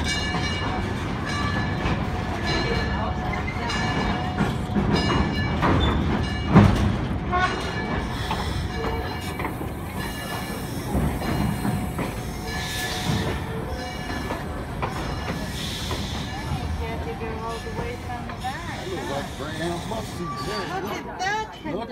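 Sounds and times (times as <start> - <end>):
train wheels rumbling on rail: 0.0 - 21.5
high wheel squeal: 17.4 - 21.2.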